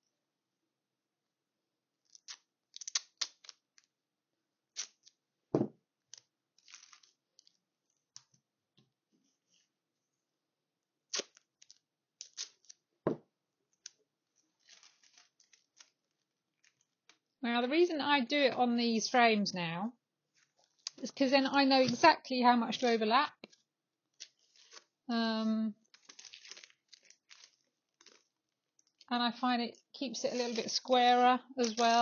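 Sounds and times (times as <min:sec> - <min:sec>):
duct tape ripping: 0:02.1 - 0:03.6, 0:11.1 - 0:12.8
parchment paper rustling: 0:06.1 - 0:08.4, 0:13.8 - 0:17.1, 0:20.3 - 0:23.6, 0:24.2 - 0:29.0, 0:30.0 - 0:32.0.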